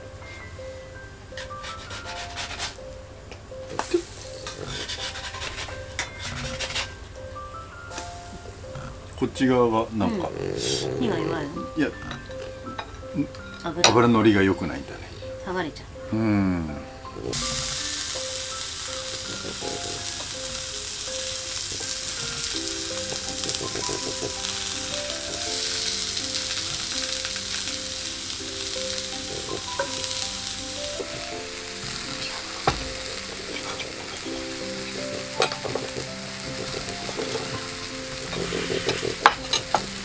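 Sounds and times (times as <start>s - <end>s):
food sizzling in frying pan: 1.3s - 3.0s, 3.7s - 9.5s, 17.2s - 40.0s.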